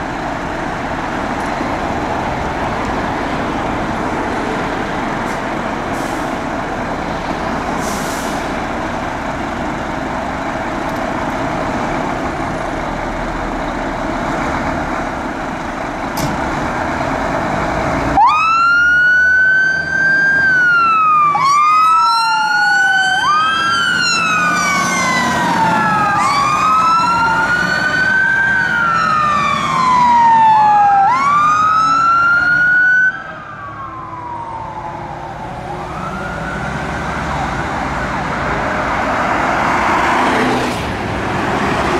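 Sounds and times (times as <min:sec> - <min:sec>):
diesel engines running: 0:00.0 - 0:41.9
sirens wailing: 0:18.0 - 0:41.9.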